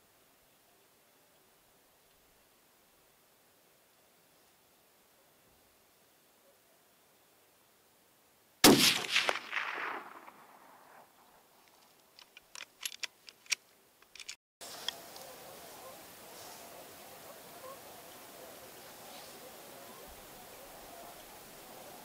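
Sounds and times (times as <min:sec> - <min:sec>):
rifle shot: 0:08.6 - 0:11.4
sharp clicks: 0:08.7 - 0:11.0, 0:11.7 - 0:15.0.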